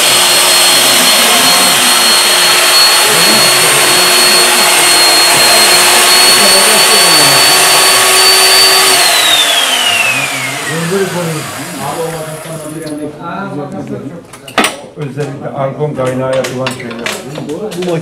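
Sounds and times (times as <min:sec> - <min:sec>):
machine motor whine and cutting: 0:00.0 - 0:13.0.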